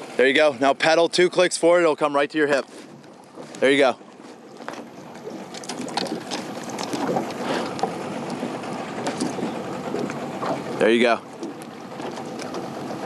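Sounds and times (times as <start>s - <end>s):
water splashing around kayak: 0.0s - 13.0s.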